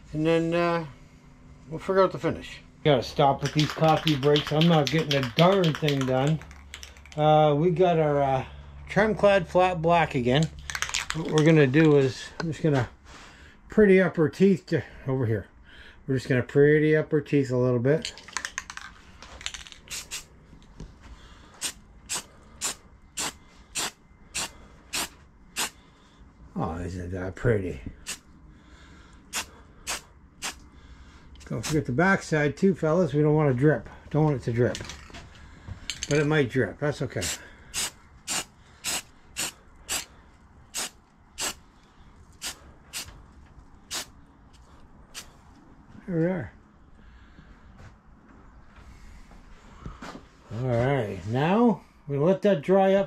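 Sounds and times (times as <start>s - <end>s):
spray paint can hissing: 19.9s - 20.3s, 21.6s - 25.8s, 29.3s - 30.6s, 37.2s - 40.1s, 40.7s - 41.6s, 42.4s - 43.1s, 43.9s - 44.1s.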